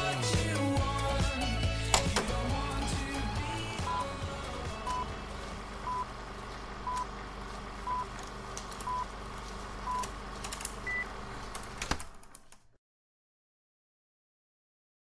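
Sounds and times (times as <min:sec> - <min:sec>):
clicks: 0:01.9 - 0:02.6, 0:06.8 - 0:07.2, 0:08.0 - 0:09.1
low hum and hiss: 0:01.9 - 0:11.8.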